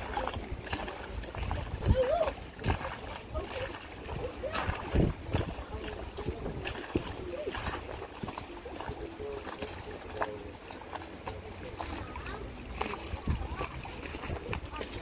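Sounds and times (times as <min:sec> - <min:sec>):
wind on microphone: 0:00.0 - 0:09.0, 0:12.7 - 0:15.0
short splashes: 0:00.0 - 0:15.0
water slapping boat hull: 0:00.0 - 0:15.0.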